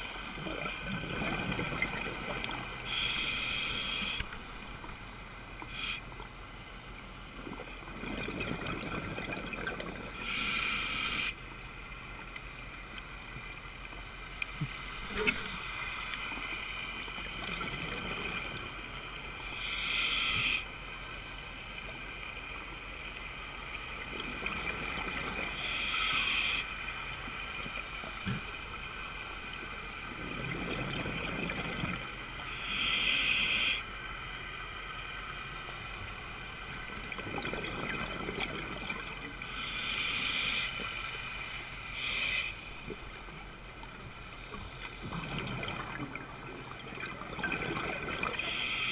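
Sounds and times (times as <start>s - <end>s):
diver breathing through regulator: 2.8s - 6.0s, 10.2s - 11.4s, 19.4s - 20.7s, 32.5s - 33.8s, 39.4s - 42.8s, 48.4s - 48.9s
bubbles rushing: 8.0s - 10.1s, 37.0s - 39.2s, 45.2s - 48.4s.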